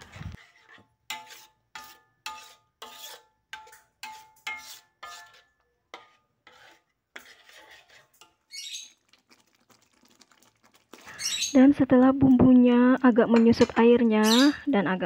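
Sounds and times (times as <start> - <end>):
spatula scraping metal wok: 0.0 - 8.7, 13.3 - 14.7.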